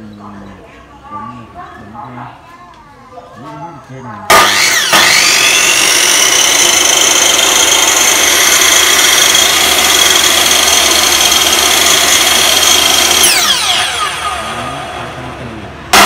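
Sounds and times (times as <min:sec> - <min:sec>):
saw motor whining: 0:04.3 - 0:16.0.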